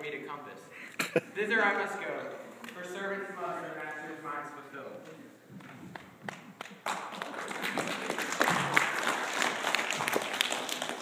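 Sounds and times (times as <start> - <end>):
audience applause: 6.7 - 11.0.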